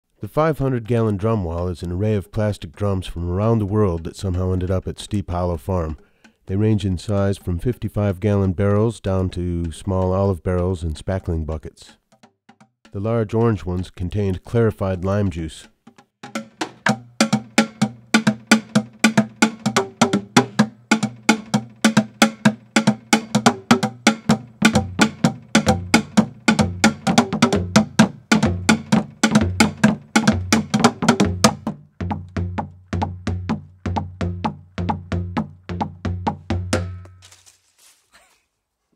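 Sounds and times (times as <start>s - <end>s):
mallets thudding on plastic drums: 15.9s - 37.2s.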